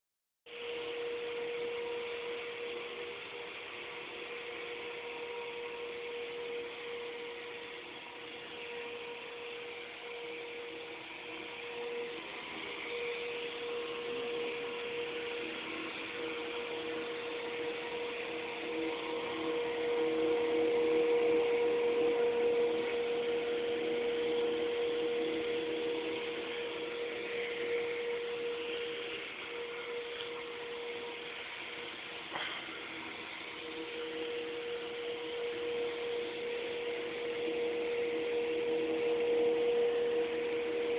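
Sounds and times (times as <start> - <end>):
cleaning machine whine and hiss: 0.5 - 40.9.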